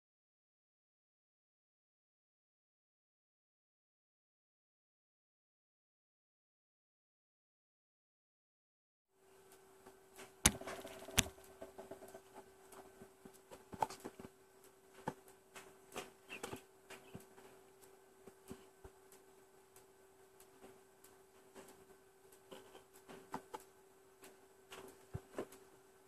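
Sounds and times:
faint hum: 9.2 - 26.0.

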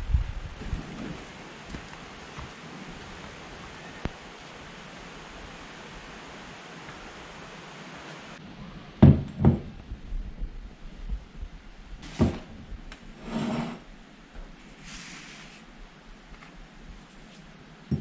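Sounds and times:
short scrape: 13.2 - 13.8, 14.8 - 15.6
soft rustle: 14.4 - 17.6.

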